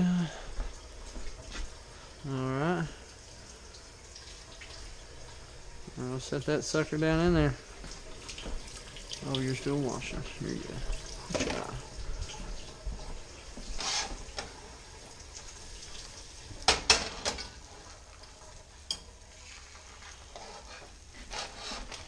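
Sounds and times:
fish sizzling in a pan: 13.3 - 22.0.

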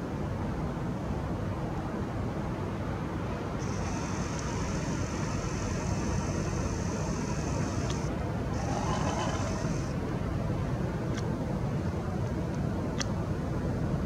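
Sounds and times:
steady low rumble: 0.2 - 14.0
camera zoom motor whining: 3.6 - 10.0.

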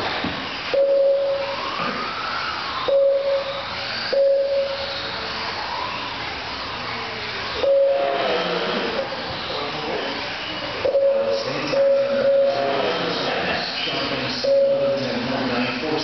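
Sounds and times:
lap timer beeps: 0.8 - 1.6, 2.9 - 5.0, 7.6 - 8.2, 10.9 - 12.8, 14.4 - 15.0.

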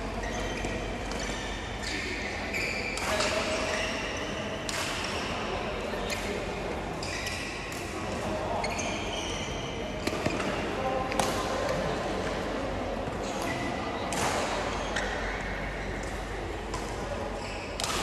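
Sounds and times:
murmur of voices: 0.0 - 18.0
shoes squeaking on floor: 7.0 - 7.6, 8.6 - 9.8
rackets hitting shuttlecock: 17.8 - 18.0.

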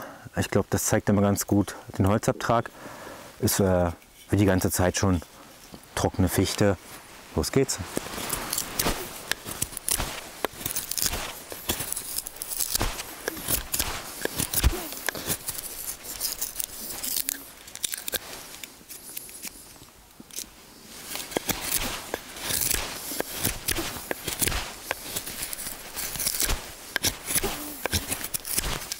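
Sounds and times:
knife carving wood: 8.0 - 28.9.

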